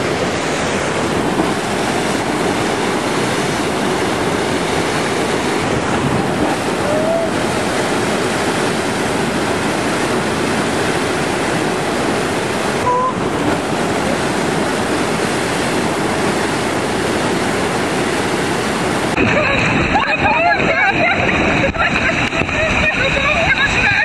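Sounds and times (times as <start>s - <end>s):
water rushing down slide: 0.0s - 24.0s.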